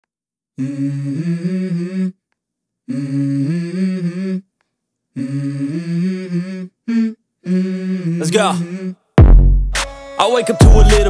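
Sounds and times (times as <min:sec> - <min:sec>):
hummed vocal melody: 0:00.6 - 0:02.2, 0:02.8 - 0:09.1, 0:10.2 - 0:11.0.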